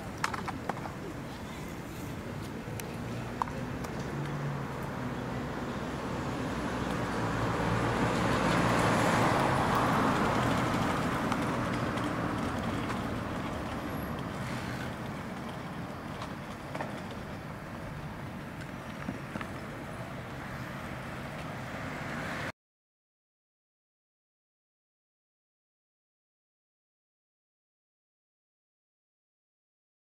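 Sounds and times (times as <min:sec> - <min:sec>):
vehicle passing: 0:01.6 - 0:22.5.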